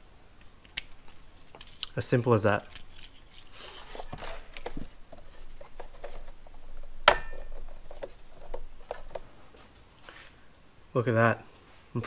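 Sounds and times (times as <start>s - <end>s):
plastic clicks: 0.4s - 2.0s
plastic rustling: 0.8s - 10.3s.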